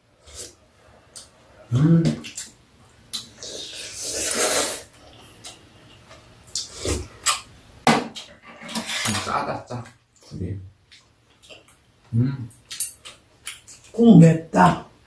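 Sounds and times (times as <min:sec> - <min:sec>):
loud slurp: 0:03.4 - 0:04.9.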